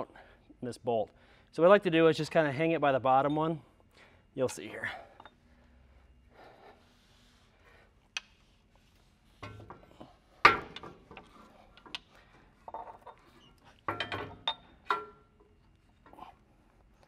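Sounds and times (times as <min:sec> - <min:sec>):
metal clanks and knocks: 0:09.4 - 0:12.0, 0:12.6 - 0:15.5.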